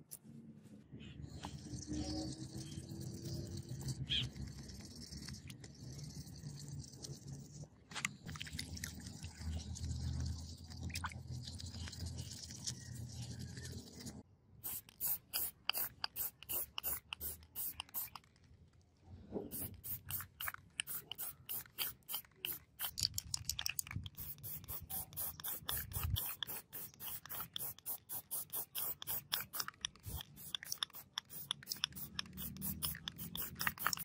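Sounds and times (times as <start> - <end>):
spray can strokes: 13.5 - 18.3, 19.5 - 34.0.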